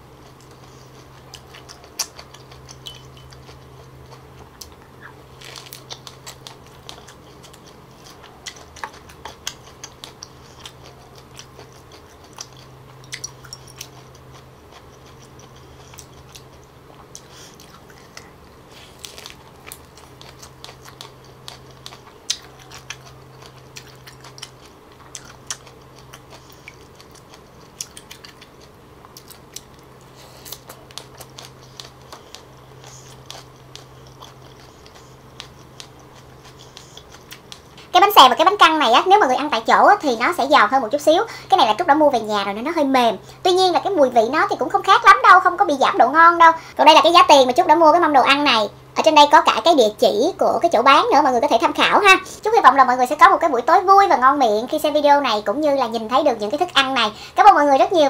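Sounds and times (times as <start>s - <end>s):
crunchy chewing of lettuce: 0.0s - 41.2s
steady low hum: 0.0s - 58.0s.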